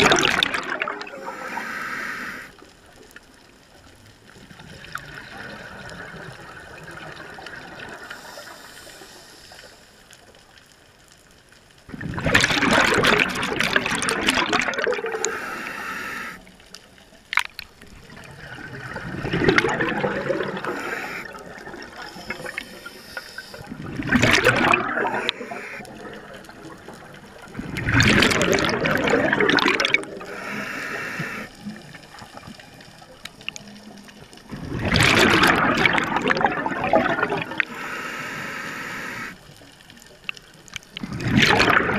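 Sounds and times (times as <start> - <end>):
exhaled bubbles bursting: 0.0 - 1.4, 4.4 - 8.1, 11.9 - 15.3, 17.3 - 22.8, 23.5 - 33.4, 34.4 - 37.8, 40.9 - 41.9
regulator inhalation hiss: 1.2 - 2.6, 8.1 - 10.0, 15.1 - 16.5, 20.5 - 23.7, 25.1 - 25.8, 30.2 - 31.6, 37.7 - 39.4.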